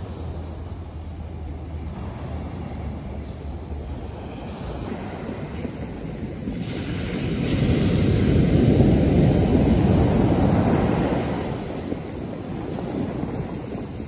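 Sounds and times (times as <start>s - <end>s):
sea surf breaking on beach: 0.0s - 14.0s.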